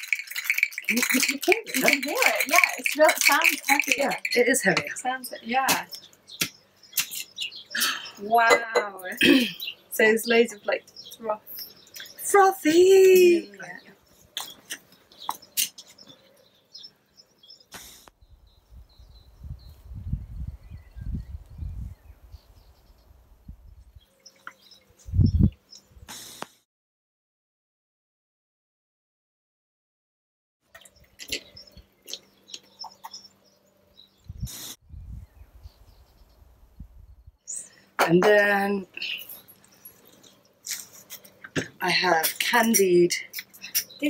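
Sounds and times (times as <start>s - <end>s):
metal cocktail shaker clinking: 0.0s - 4.9s
faint birds chirping: 0.0s - 26.6s, 30.7s - 44.0s.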